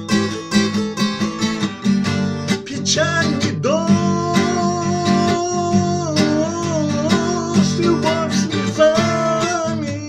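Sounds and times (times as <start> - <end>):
strummed acoustic guitar: 0.0 - 10.0
man singing: 2.4 - 10.0.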